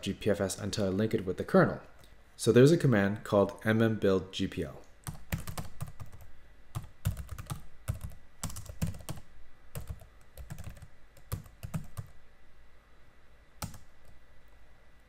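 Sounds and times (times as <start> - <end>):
typing on computer keyboard: 5.1 - 9.2, 9.8 - 12.1, 13.6 - 13.9.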